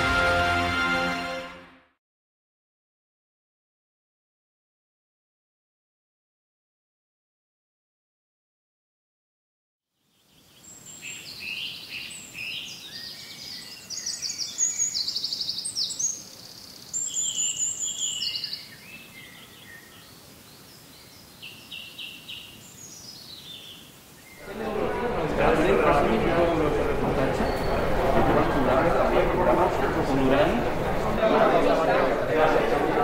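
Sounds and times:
faint steady background noise: 0:10.0 - 0:33.0
birds chirping and trilling: 0:10.1 - 0:32.7.

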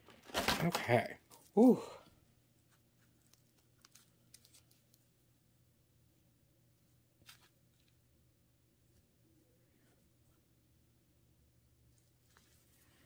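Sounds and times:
faint clicks and taps handling packaging: 0:02.7 - 0:05.1.

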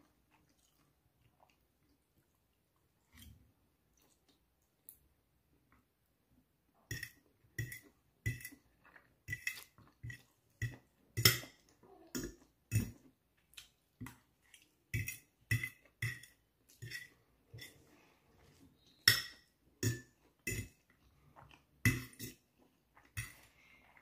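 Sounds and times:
chewing: 0:00.0 - 0:05.0, 0:20.2 - 0:24.0
fork clinking and scraping plate: 0:15.0 - 0:17.9.

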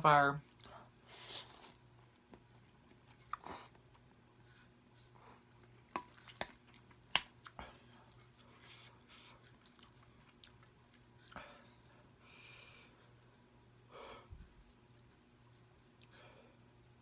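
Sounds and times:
chewing noodles: 0:00.5 - 0:04.7, 0:05.4 - 0:11.4.

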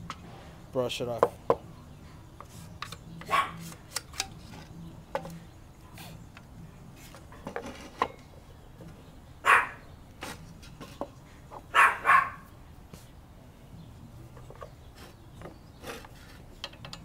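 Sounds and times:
dog barking: 0:03.3 - 0:03.6, 0:09.4 - 0:09.8, 0:11.7 - 0:12.5.

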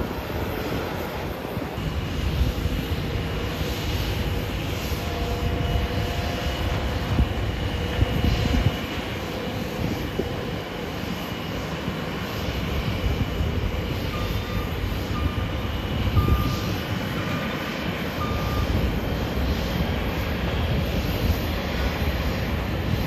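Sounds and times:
jet engines rushing: 0:00.0 - 0:23.0
short beeps: 0:14.1 - 0:16.8, 0:18.2 - 0:18.8.

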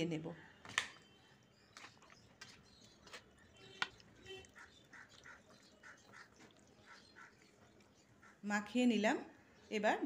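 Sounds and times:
hands squelching raw chicken: 0:01.6 - 0:08.3.

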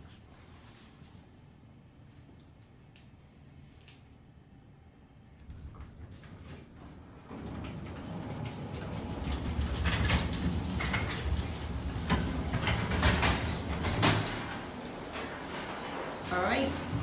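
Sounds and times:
elevator doors sliding open: 0:05.5 - 0:17.0
shopping carts rolling and rattling: 0:06.2 - 0:17.0.

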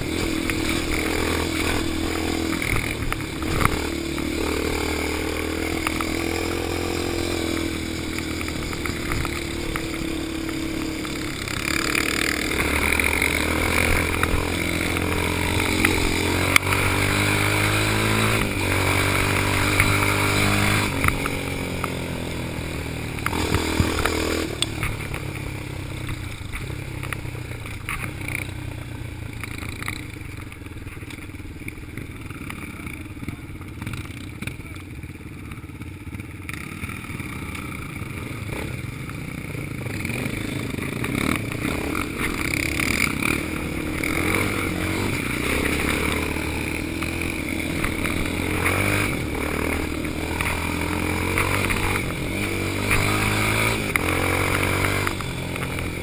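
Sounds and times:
other quads and dirt bikes: 0:00.0 - 0:56.0
quad bike engine revving: 0:00.0 - 0:56.0.

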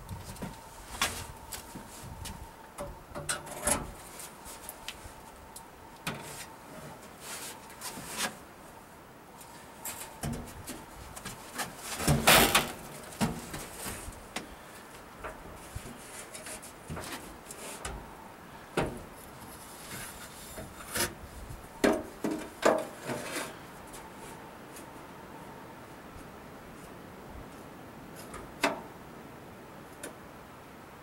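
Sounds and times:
tailgate scraping: 0:11.5 - 0:14.1, 0:19.8 - 0:21.2, 0:21.8 - 0:23.6.

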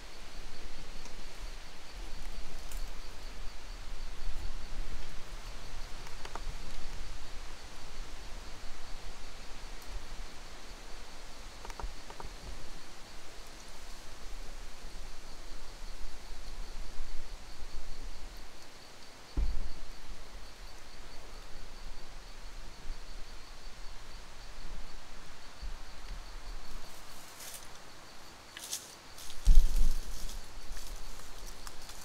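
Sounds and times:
wind rumble on microphone: 0:00.0 - 0:18.6, 0:29.3 - 0:31.9
high insect trill: 0:00.0 - 0:32.0
low thump: 0:19.4 - 0:19.8.

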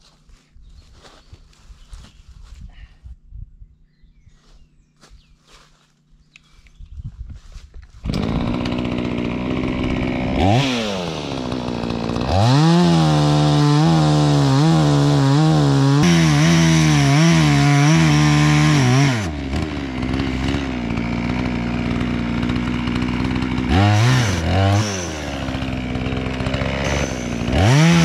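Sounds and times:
chainsaw cutting through log: 0:08.0 - 0:28.0
chainsaw idling and revving: 0:08.0 - 0:28.0.

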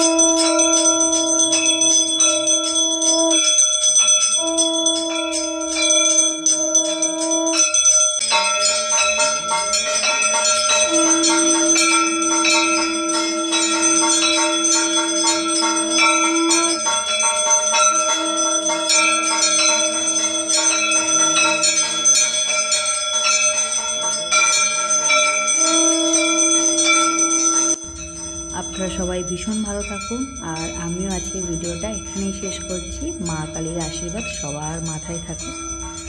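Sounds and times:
hand bell ringing rapidly: 0:00.0 - 0:36.0
steady held note: 0:10.7 - 0:21.6, 0:25.6 - 0:36.0.

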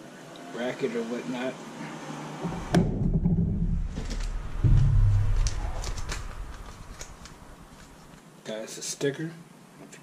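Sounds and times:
low rumble: 0:02.4 - 0:08.1.

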